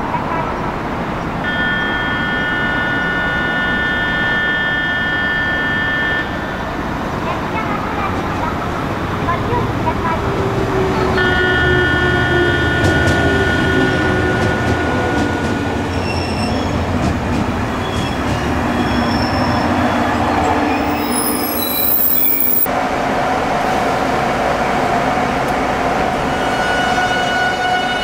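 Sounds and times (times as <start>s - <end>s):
electric train rail rumble: 1.4s - 28.0s
high steady tones: 17.3s - 22.7s.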